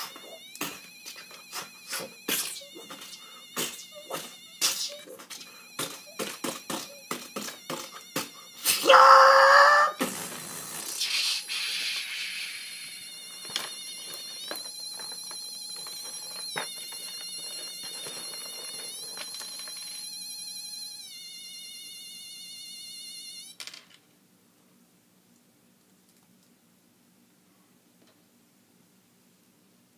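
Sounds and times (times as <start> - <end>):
wavering electronic tones: 0.0 - 10.2, 10.9 - 22.4.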